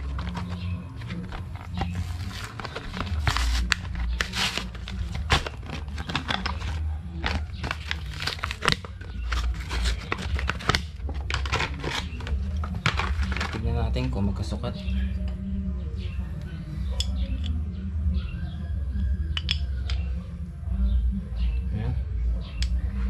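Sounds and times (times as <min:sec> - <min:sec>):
plastic blister pack crinkling and tearing: 0:00.0 - 0:13.6.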